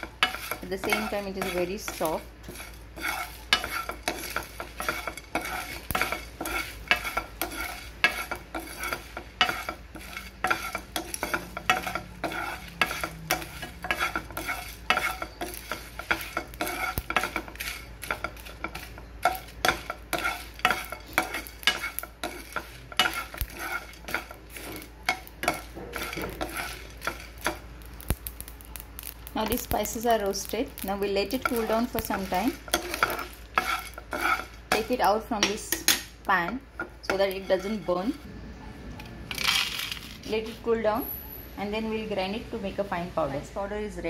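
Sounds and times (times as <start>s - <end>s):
spices rattling in a pan: 0.0s - 38.3s, 39.3s - 40.6s.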